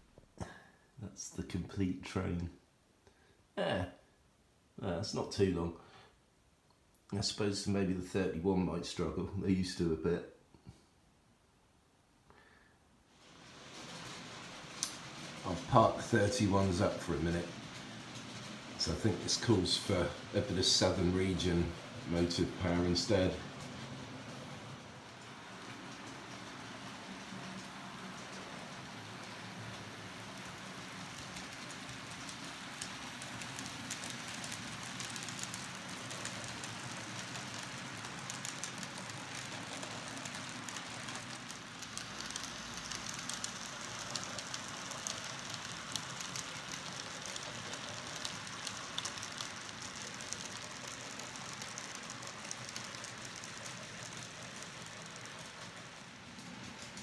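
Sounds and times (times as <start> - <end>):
wheels clicking over rail joints: 13.2 - 57.0
model train motor hum: 13.3 - 57.0.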